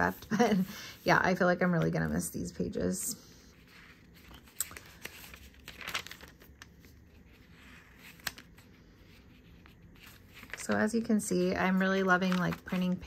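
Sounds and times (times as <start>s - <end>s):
paper pages rustling: 3.6s - 13.0s.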